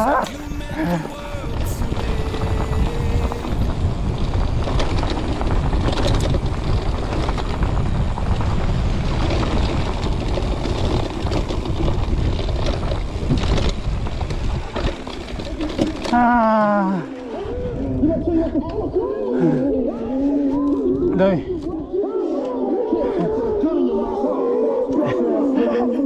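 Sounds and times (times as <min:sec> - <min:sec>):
bike rattling over bumpy ground: 0:00.0 - 0:21.9
wind buffeting microphone: 0:00.0 - 0:24.9.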